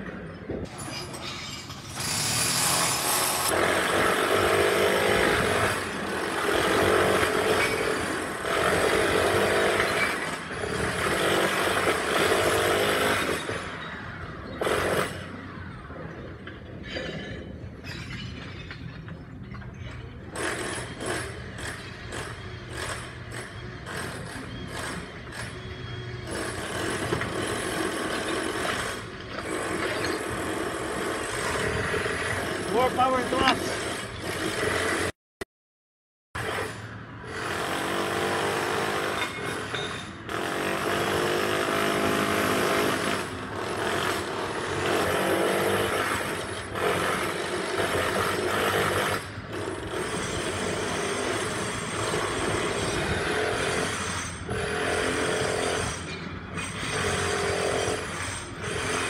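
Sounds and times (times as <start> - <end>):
jackhammer breaking concrete: 0.7 - 13.9, 36.4 - 59.0.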